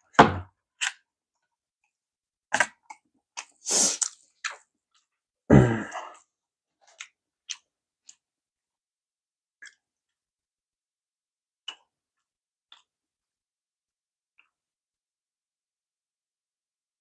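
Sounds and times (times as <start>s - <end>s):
wet mouth clicks: 2.6s - 4.6s, 9.6s - 9.8s, 11.6s - 11.9s
breathy hiss: 3.6s - 4.1s
heavy low throat sounds: 5.5s - 6.2s.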